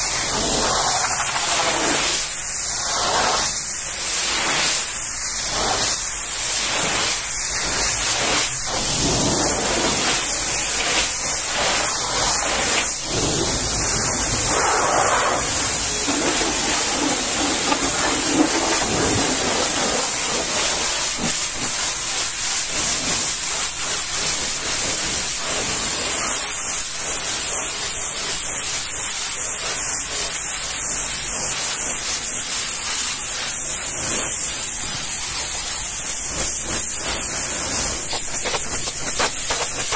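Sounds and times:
pressure washer jet hissing: 0:00.0 - 0:39.9
water splattering on surfaces: 0:04.2 - 0:28.3, 0:29.0 - 0:39.9.

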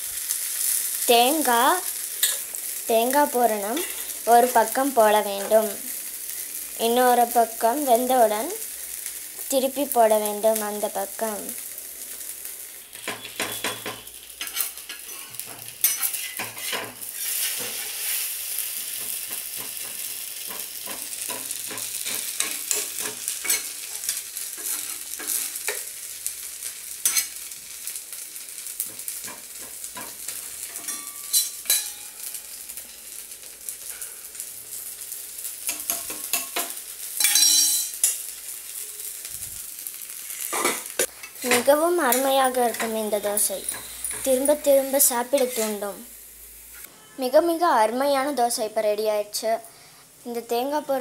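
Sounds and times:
frying hiss: 0:00.0 - 0:51.0
spatula scraping pan: 0:03.8 - 0:04.2, 0:12.9 - 0:25.9, 0:40.3 - 0:45.9.

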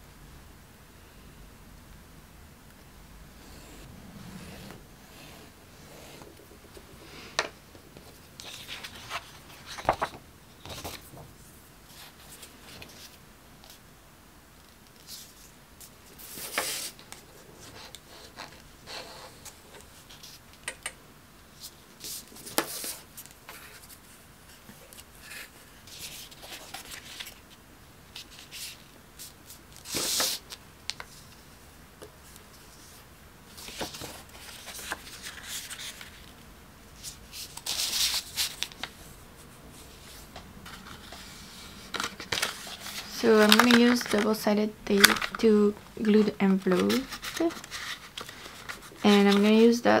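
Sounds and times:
paper folding and rustling: 0:06.2 - 0:13.8, 0:14.9 - 0:20.4, 0:21.6 - 0:31.4, 0:32.2 - 0:36.4, 0:37.0 - 0:39.1, 0:39.7 - 0:49.6.

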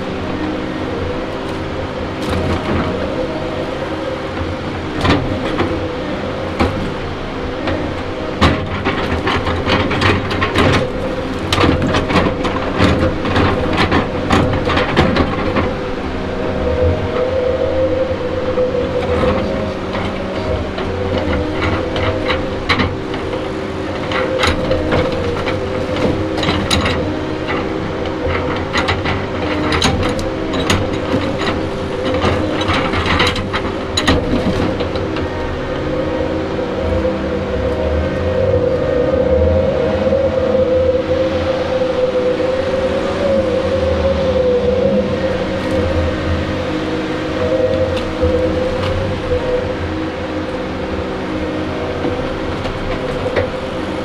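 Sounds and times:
diesel engine running: 0:00.0 - 0:54.0
sharp clanks and knocks: 0:06.5 - 0:16.3, 0:19.0 - 0:36.1.

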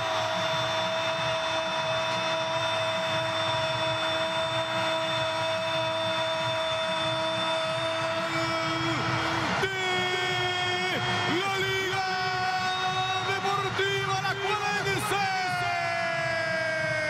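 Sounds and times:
crowd noise: 0:00.0 - 0:17.0
commentator shouting goal: 0:05.0 - 0:17.0.

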